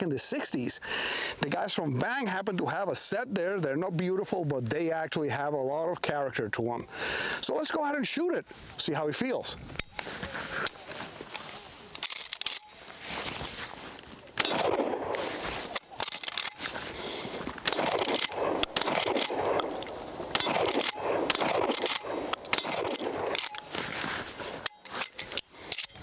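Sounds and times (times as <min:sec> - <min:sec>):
shotgun pump racking: 0:11.9 - 0:12.7, 0:15.8 - 0:23.7, 0:24.6 - 0:26.0
shotgun shots: 0:14.4 - 0:15.4, 0:17.6 - 0:23.7.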